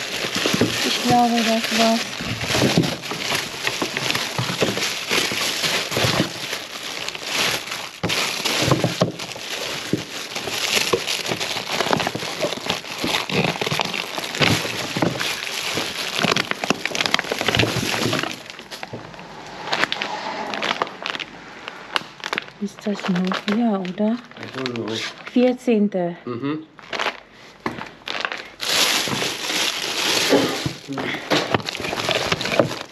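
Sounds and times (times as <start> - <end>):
packs and trays clicking: 0.0 - 18.8, 26.9 - 32.9
plastic packaging rustling: 0.0 - 25.6, 26.8 - 32.9.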